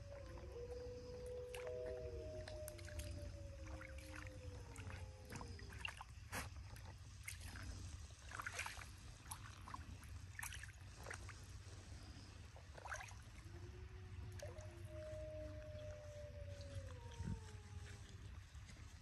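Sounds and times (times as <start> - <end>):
wolf howls: 0.0 - 6.0, 13.4 - 18.9
paws splashing in shallow water: 0.0 - 19.0.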